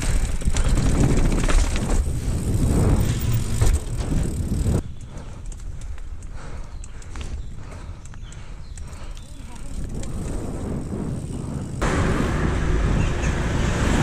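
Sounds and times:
bike knocking over steps: 0:00.0 - 0:02.3, 0:03.0 - 0:04.6
bike rumbling down concrete steps: 0:00.0 - 0:12.9
tyres rolling on dirt trail: 0:00.0 - 0:14.0.

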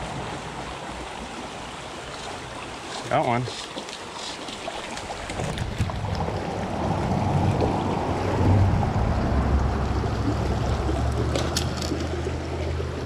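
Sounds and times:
creek water rushing over rocks: 0:00.0 - 0:13.0
low rumble on microphone: 0:05.4 - 0:13.0.

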